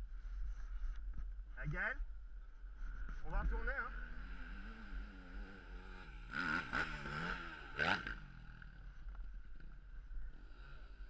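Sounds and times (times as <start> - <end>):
dirt bike engine revving: 3.8 - 11.0.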